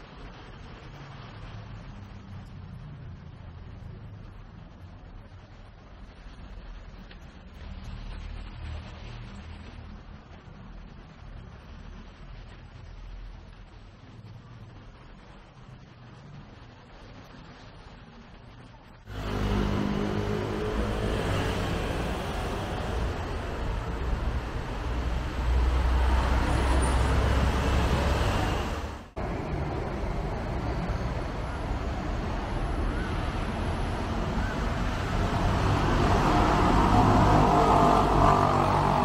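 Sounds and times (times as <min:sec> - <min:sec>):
city street traffic: 0:00.0 - 0:39.0
heavy truck engine rumble: 0:19.1 - 0:39.0.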